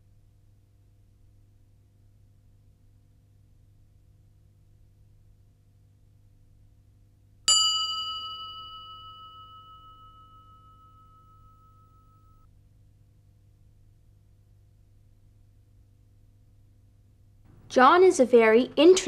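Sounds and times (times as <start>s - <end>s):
bell ding ringing out: 7.5s - 12.4s.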